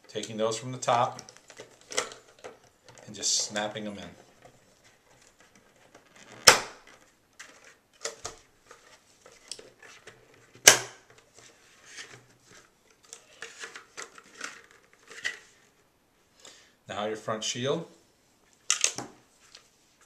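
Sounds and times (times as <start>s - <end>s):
plastic earmuffs snapping into helmet: 5.9s - 7.0s, 10.6s - 11.2s, 18.7s - 19.2s.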